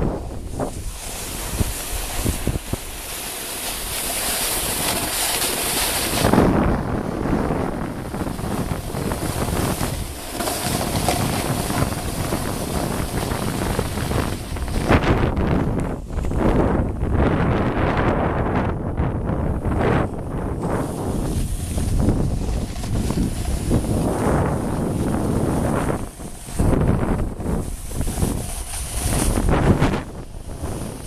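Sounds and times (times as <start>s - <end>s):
snowboard sliding over snow: 0.0s - 31.0s
wind buffeting microphone: 0.0s - 31.0s.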